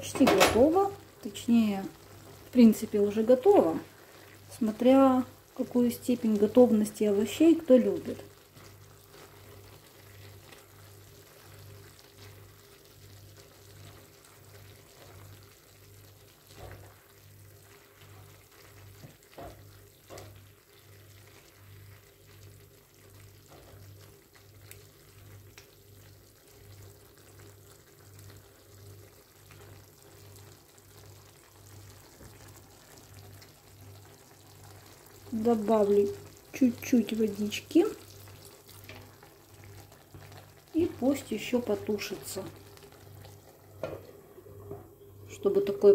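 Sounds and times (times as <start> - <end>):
food simmering in a frying pan: 0.0 - 45.9
spatula stirring food: 8.3 - 15.6, 16.2 - 22.5, 23.1 - 25.4.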